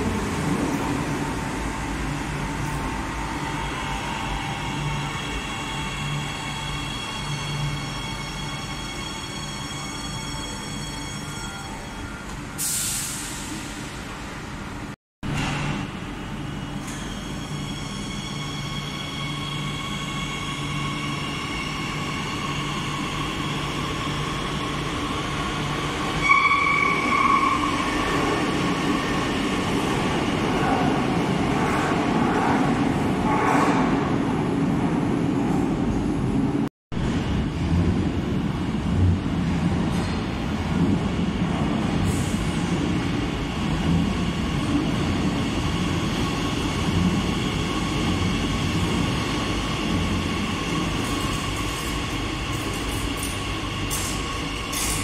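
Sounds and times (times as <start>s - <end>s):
wheels rumbling on rail: 21.3s - 55.0s
sharp wheel squeal: 26.2s - 28.0s.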